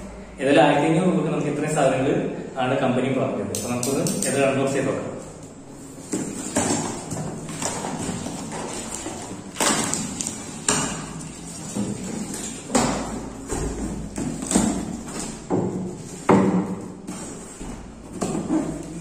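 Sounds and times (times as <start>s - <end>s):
cardboard flaps scraping: 5.8s - 16.4s.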